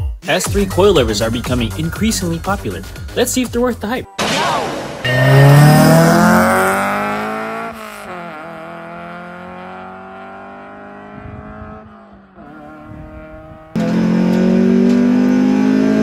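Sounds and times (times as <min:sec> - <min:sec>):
car engine revving: 0:04.6 - 0:16.0.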